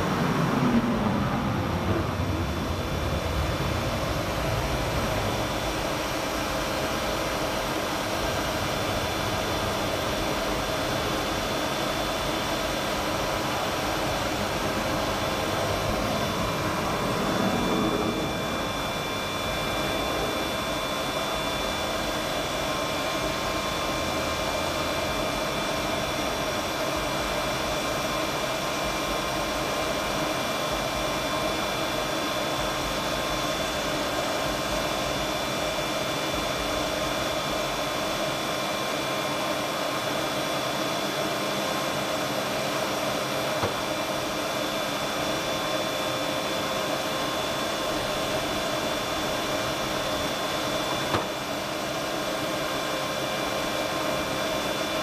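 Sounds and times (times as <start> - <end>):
machinery whine and hiss: 0.0 - 55.0.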